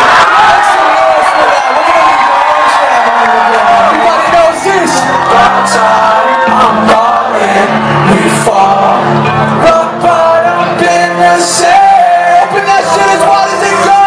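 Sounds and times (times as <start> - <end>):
crowd shouting: 0.0 - 14.0
loud live music with vocals: 0.0 - 14.0.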